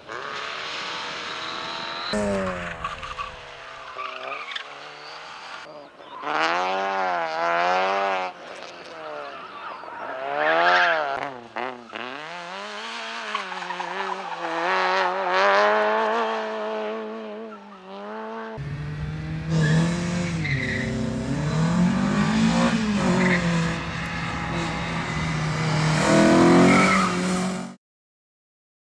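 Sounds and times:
car engine revving: 0.0 - 5.6, 10.1 - 27.8
tyre squeal: 19.5 - 27.3.

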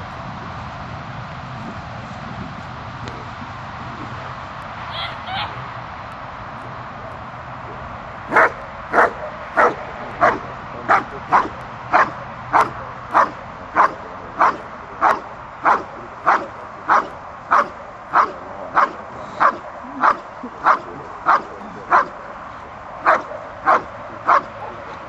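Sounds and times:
dog barking sharply: 8.3 - 22.2, 23.0 - 24.8.

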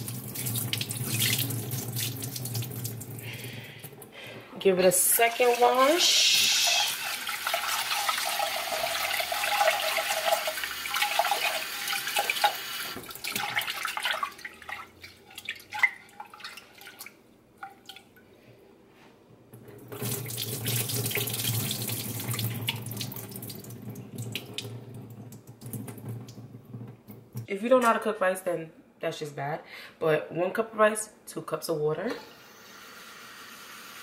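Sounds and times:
water splashing into metal sink: 0.0 - 4.1, 5.0 - 18.2, 19.8 - 27.4.

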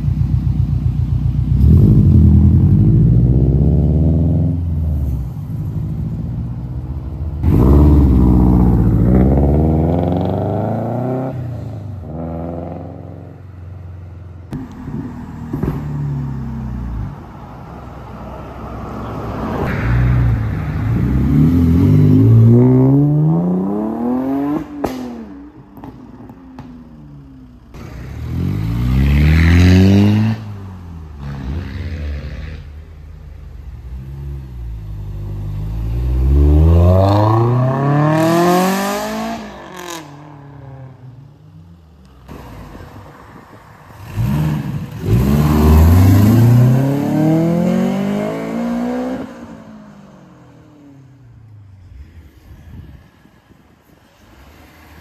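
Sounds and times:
cars accelerating with gear changes: 14.4 - 53.3.

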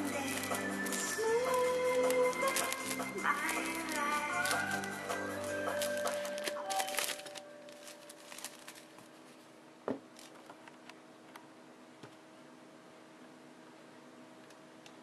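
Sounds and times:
cellophane crinkling: 0.0 - 10.7.

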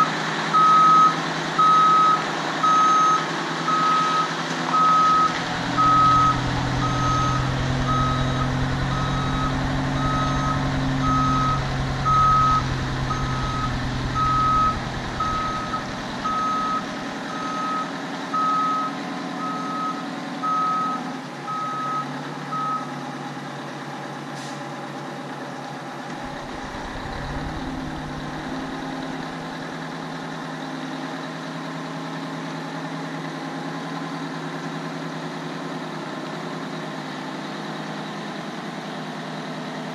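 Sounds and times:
truck backup alarm beeping: 0.0 - 23.0, 26.3 - 29.4
diesel engine running: 0.0 - 39.9.

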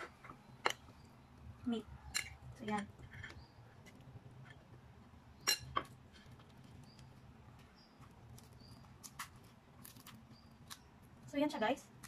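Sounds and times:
metal spoon clinking ceramic dish: 5.4 - 5.9.

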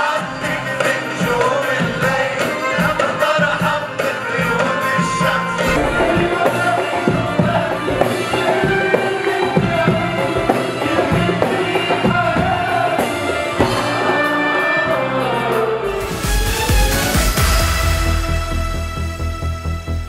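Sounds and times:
man singing: 0.0 - 13.6
drums and percussion: 0.1 - 19.4.

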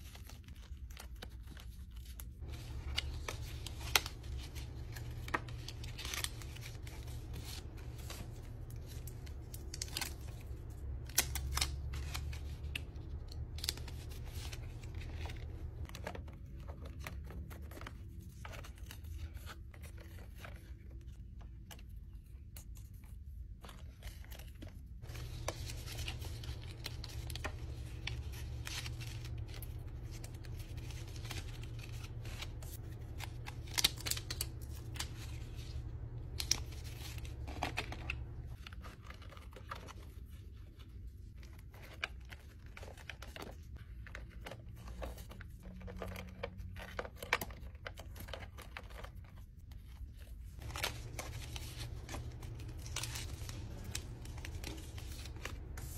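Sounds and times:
paper and stickers rustling: 0.0 - 55.9
steady low hum: 2.4 - 18.6, 25.0 - 38.8, 50.4 - 55.9.

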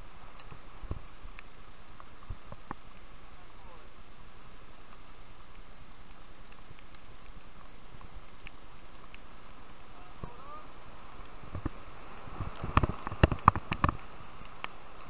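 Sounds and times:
water splashing against raft: 9.2 - 15.0.

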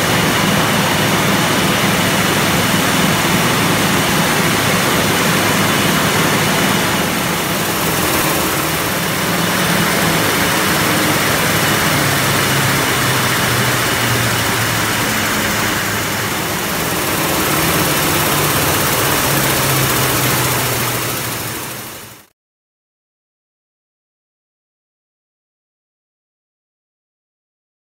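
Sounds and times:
low wavering hum: 0.0 - 22.2
bottling line mechanical din: 0.0 - 22.3.

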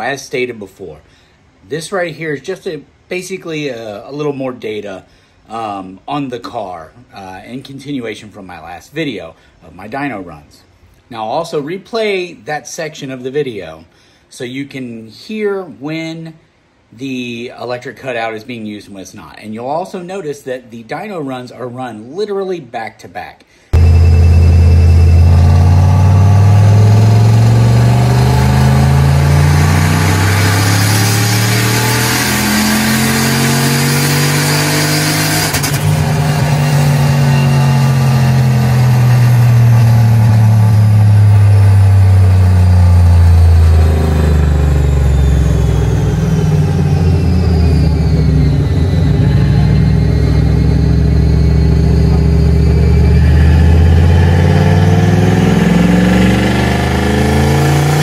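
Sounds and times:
engine revving on a dyno: 23.8 - 58.0.

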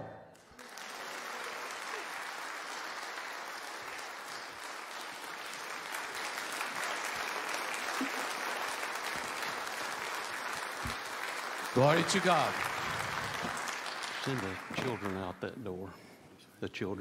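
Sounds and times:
congregation applauding: 0.3 - 15.6.

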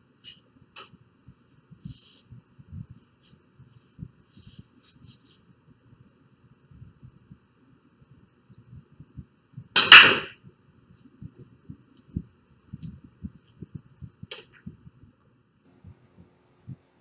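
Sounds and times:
pool balls knocking: 9.8 - 10.4.

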